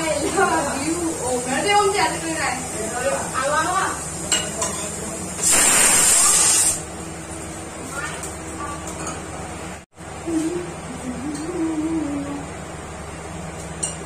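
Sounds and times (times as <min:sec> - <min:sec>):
pressure cooker steam hiss: 0:05.4 - 0:06.8.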